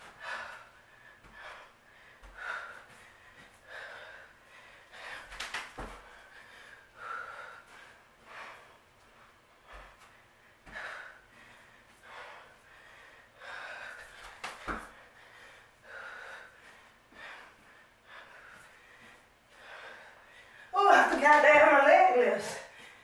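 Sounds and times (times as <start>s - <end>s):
woman breathing hard: 0.0s - 20.8s, 22.6s - 23.0s.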